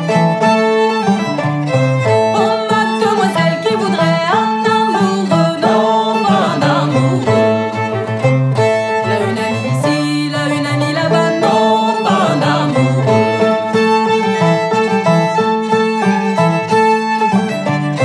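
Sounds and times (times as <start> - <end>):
fiddle: 0.0 - 18.0
string band playing: 0.0 - 18.0
voices singing together: 2.4 - 7.6, 9.1 - 13.7.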